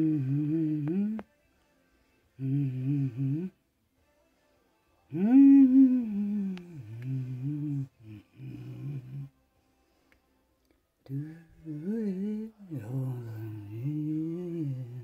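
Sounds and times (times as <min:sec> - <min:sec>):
man humming: 0:00.0 - 0:01.3, 0:02.4 - 0:03.6, 0:05.1 - 0:09.3, 0:11.0 - 0:15.0.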